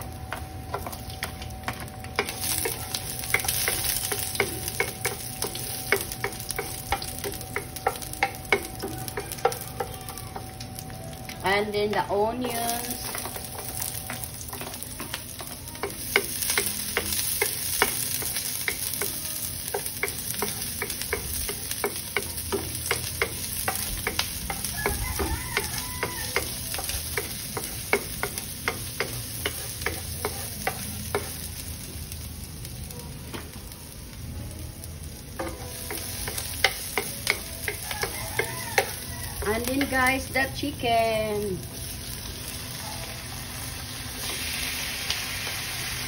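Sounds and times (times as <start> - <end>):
onions sizzling in oil: 0.0 - 46.0
wooden spoon clicking on pan: 0.7 - 10.6, 12.4 - 31.3, 35.4 - 40.0.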